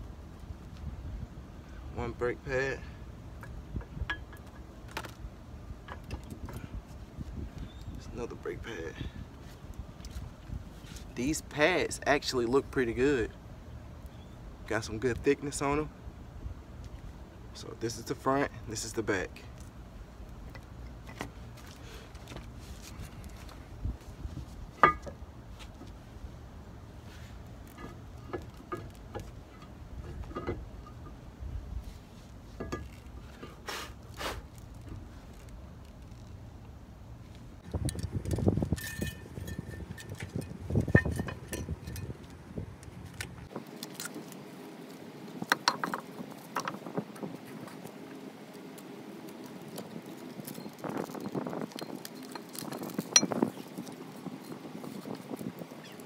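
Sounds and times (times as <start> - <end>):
steady low rumble: 0.0 - 43.7
light metal knocks and scrapes: 27.1 - 31.2, 31.8 - 33.7, 37.9 - 42.4.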